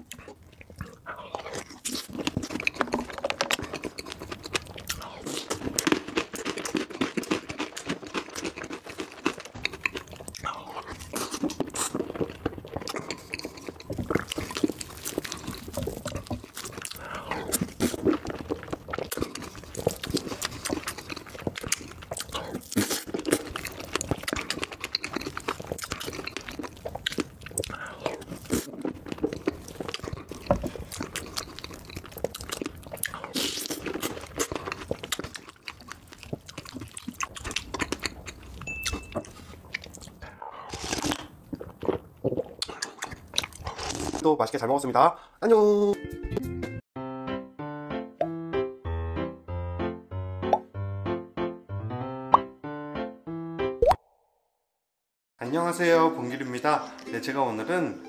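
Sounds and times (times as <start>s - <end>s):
person chewing and smacking: 0.0s - 44.6s.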